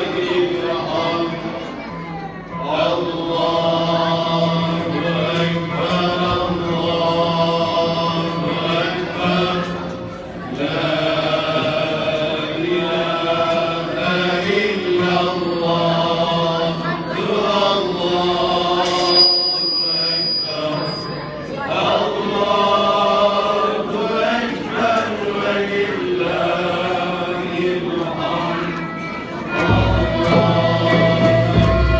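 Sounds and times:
male choir singing in unison: 0.0 - 1.7, 2.6 - 31.9
ney flute: 18.9 - 21.4.

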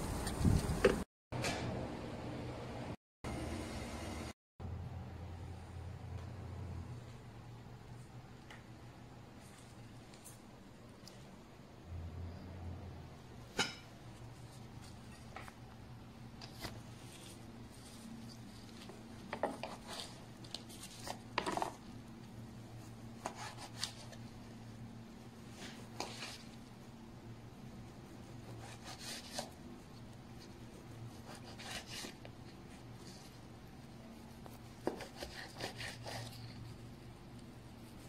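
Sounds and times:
knife scraping cutting board: 16.4 - 21.8, 23.2 - 24.2, 25.5 - 26.6, 28.4 - 29.6, 31.1 - 32.2, 34.5 - 36.7.

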